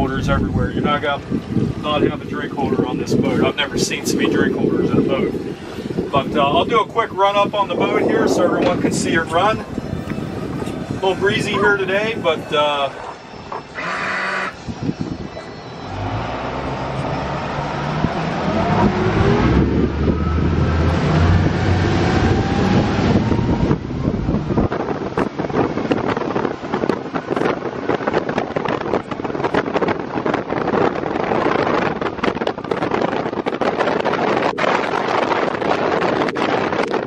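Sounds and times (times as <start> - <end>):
wind buffeting microphone: 0.0 - 37.0
outboard engines accelerating: 7.8 - 25.6.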